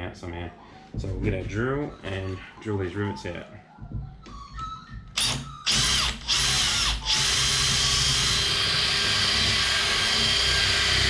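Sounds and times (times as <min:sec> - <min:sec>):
cordless drill drilling rivet: 0:05.2 - 0:11.0.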